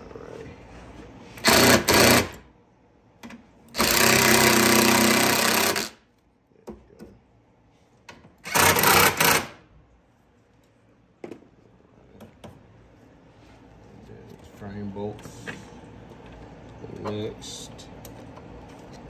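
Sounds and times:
power wrench running: 0:01.4 - 0:02.4, 0:03.7 - 0:06.0, 0:08.4 - 0:09.6.

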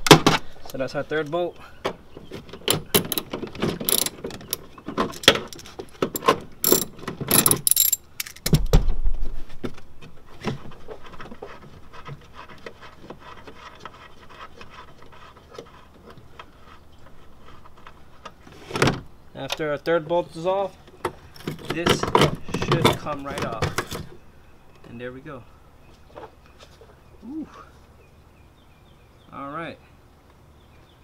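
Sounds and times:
hand tools rattling: 0:02.6 - 0:08.4
ratchet wrench clicking: 0:03.0 - 0:03.3, 0:03.9 - 0:04.6, 0:06.2 - 0:08.4.

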